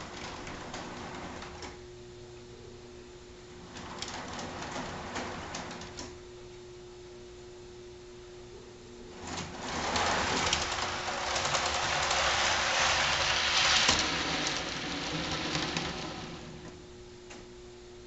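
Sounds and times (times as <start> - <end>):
model freight cars rolling with hissing rustle: 9.2 - 16.7.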